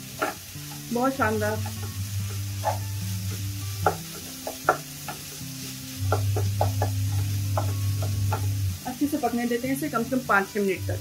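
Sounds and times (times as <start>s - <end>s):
spatula scraping a pan: 0.0s - 8.6s
meat sizzling: 0.0s - 11.0s
soft background music: 0.0s - 11.0s.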